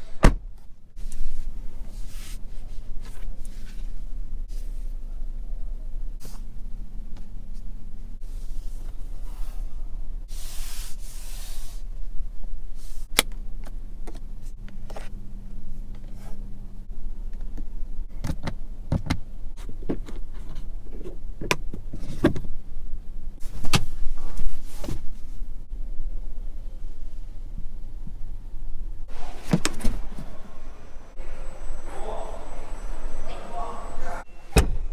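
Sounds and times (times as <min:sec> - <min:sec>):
low electric hum: 0:11.8 - 0:34.9.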